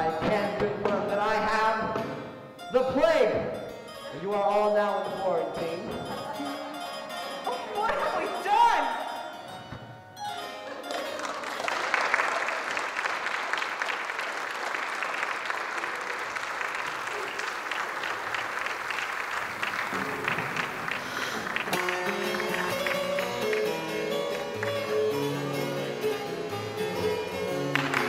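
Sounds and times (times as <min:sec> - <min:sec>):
plucked-string music: 0:00.0 - 0:11.7, 0:19.9 - 0:28.0
crowd applauding: 0:10.3 - 0:26.0, 0:27.4 - 0:28.0.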